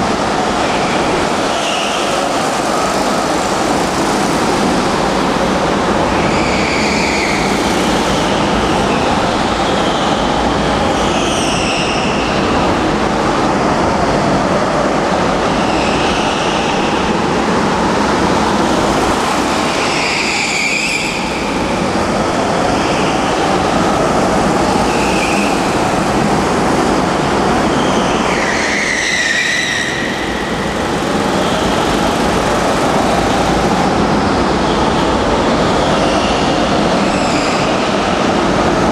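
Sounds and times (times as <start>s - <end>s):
go-kart engines droning: 0.0s - 38.9s
tyres squealing: 18.7s - 33.9s.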